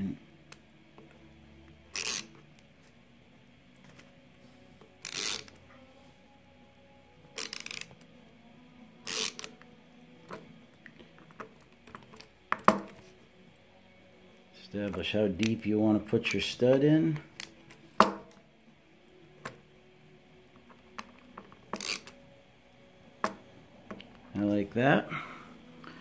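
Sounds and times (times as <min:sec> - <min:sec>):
ratcheting screwdriver clicking: 0:01.9 - 0:02.4, 0:05.0 - 0:05.6, 0:07.4 - 0:08.1, 0:09.0 - 0:09.6, 0:21.7 - 0:22.2.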